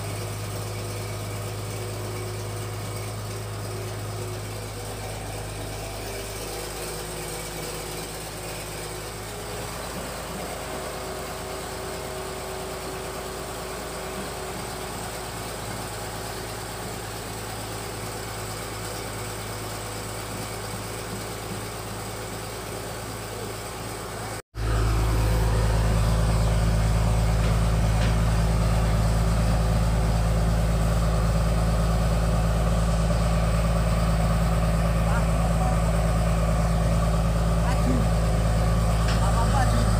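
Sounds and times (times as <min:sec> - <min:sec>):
machine mechanical drone: 0:24.6 - 0:30.5
low hum: 0:24.6 - 0:39.9.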